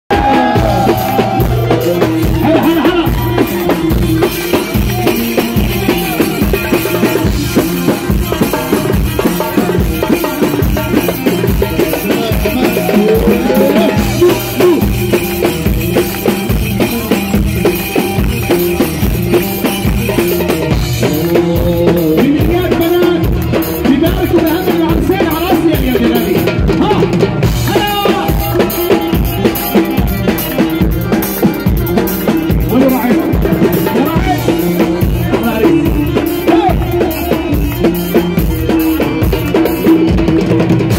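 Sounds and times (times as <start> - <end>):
driving drum beat: 0.0 - 40.9
party music: 0.1 - 40.9
wavering melody line: 0.4 - 21.9.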